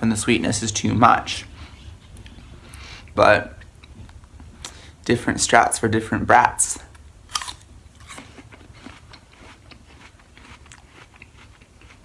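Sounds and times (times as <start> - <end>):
apple crunching: 6.8 - 12.0.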